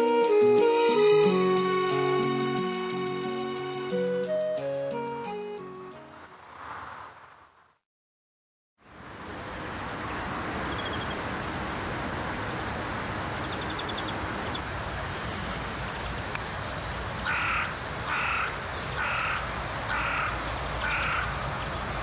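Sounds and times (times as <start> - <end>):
distant motorway traffic roar: 6.0 - 7.7, 8.8 - 22.0
crow cawing: 17.3 - 21.4.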